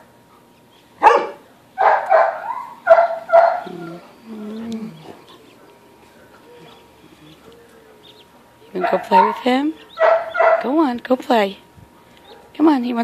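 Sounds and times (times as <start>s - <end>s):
dog barking sharply: 1.0s - 3.9s, 8.8s - 10.7s
dog grumbling: 3.2s - 5.5s.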